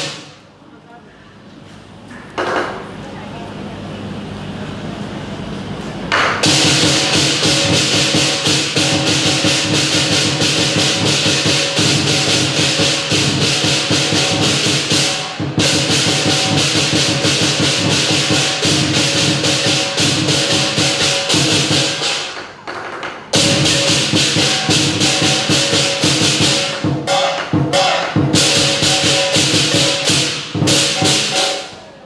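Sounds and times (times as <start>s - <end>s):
cymbal crashes: 0.0s - 0.4s, 6.4s - 22.4s, 23.4s - 31.8s
drum beat: 0.0s - 0.4s, 6.4s - 31.8s.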